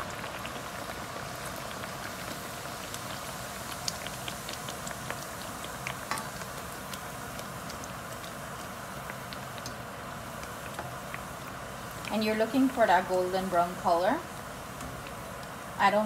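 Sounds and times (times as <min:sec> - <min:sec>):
oil crackling pops: 0:00.0 - 0:12.2, 0:14.4 - 0:15.6
dough sizzling in hot oil: 0:00.0 - 0:16.0.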